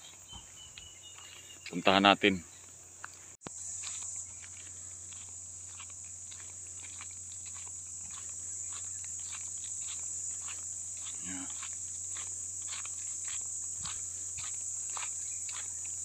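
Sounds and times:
footsteps crunching on gravel: 0.0s - 16.0s
high-pitched insect drone: 3.4s - 16.0s.

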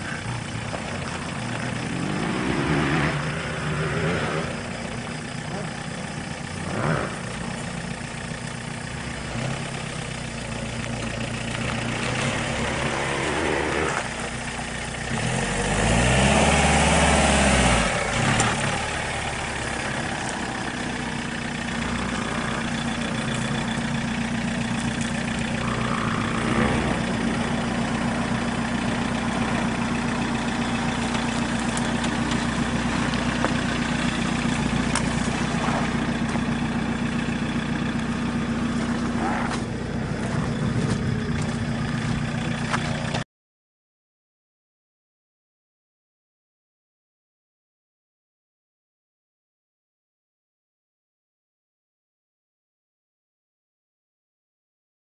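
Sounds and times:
car engine revving and idling: 0.0s - 43.2s.

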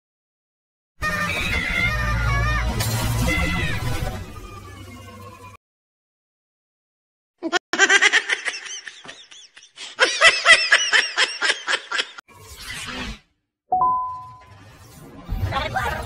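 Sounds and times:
cartoon character laughing: 7.4s - 12.2s.

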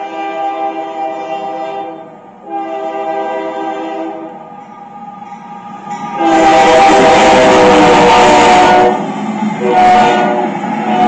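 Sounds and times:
locomotive air horn blasts: 0.0s - 4.4s, 6.2s - 11.0s
locomotive running noise: 0.0s - 11.0s.

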